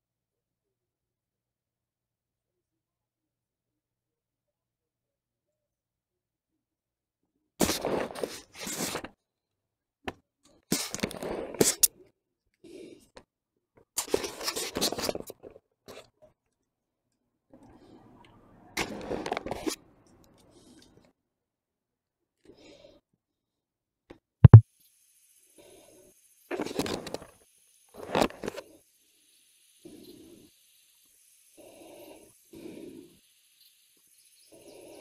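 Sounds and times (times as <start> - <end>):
sharp clicks: 24.4 - 24.6.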